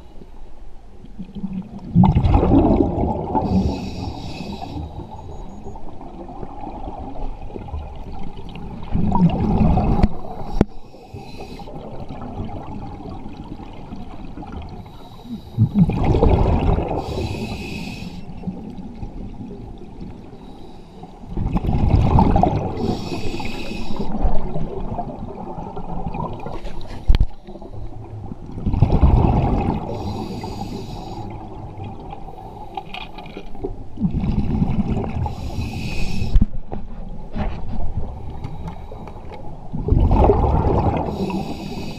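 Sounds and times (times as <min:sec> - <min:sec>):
exhaled bubbles rumbling underwater: 0:00.8 - 0:20.5, 0:21.1 - 0:41.9
diving regulator hiss: 0:03.4 - 0:05.4, 0:10.1 - 0:11.8, 0:17.0 - 0:18.4, 0:22.8 - 0:24.2, 0:29.9 - 0:31.4, 0:35.2 - 0:36.4, 0:41.1 - 0:41.9.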